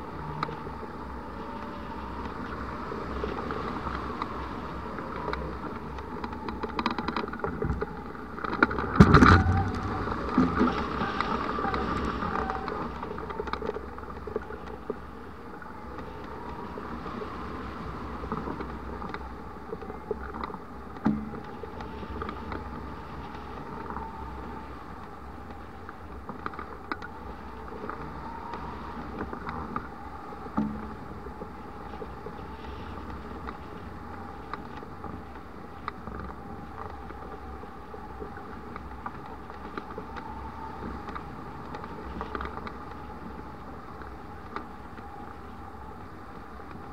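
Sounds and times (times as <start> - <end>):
faint wavering whistle: 9.2 - 13.9, 27.0 - 34.5, 36.2 - 46.0.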